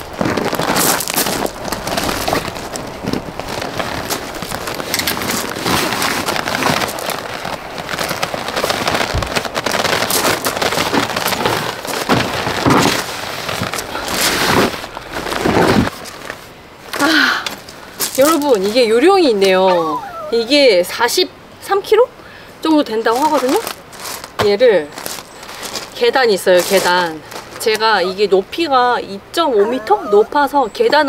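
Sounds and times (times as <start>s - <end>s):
bag rustling and scraping: 0.0s - 18.9s, 23.0s - 28.2s
knocks and fabric crackles: 0.0s - 19.7s, 23.0s - 28.0s.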